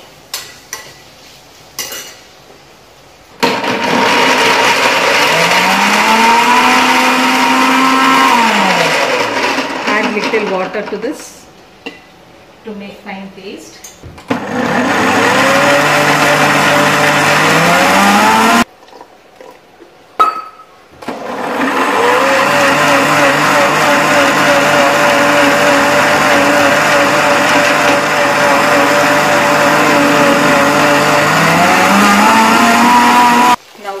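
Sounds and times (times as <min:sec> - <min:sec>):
mixer grinder motor whine: 0:03.4 - 0:10.5, 0:14.3 - 0:18.7, 0:21.0 - 0:33.6.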